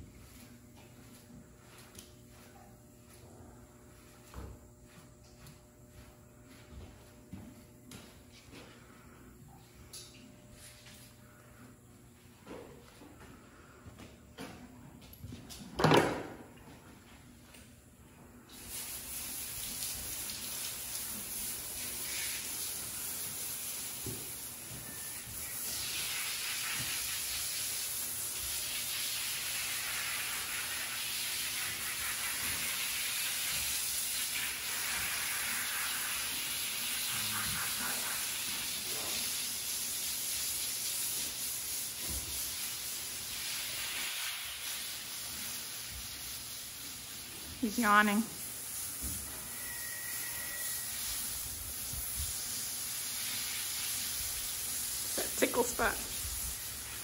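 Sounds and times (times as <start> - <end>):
hose nozzle spraying water: 18.5 - 57.0.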